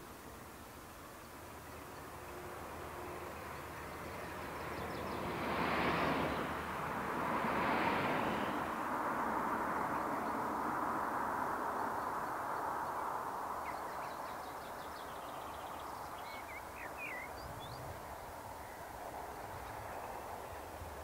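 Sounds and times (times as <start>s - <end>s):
distant diesel train hum: 0.1s - 13.2s
birds chirping: 11.7s - 20.8s.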